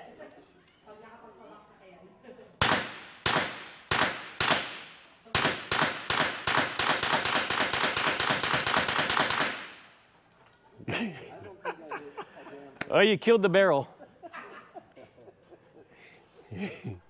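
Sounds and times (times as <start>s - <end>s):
gunshots: 2.6s - 9.9s.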